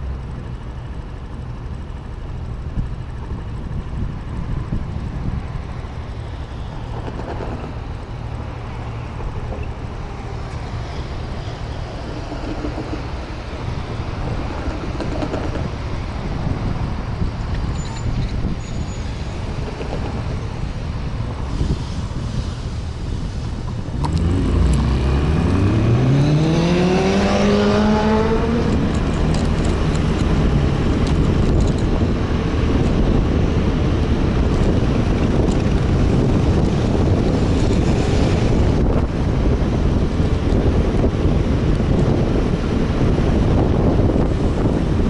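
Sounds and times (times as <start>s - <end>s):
road noise: 0.0s - 45.0s
wind on microphone: 2.8s - 45.0s
scooter engine pulling away: 24.0s - 30.8s.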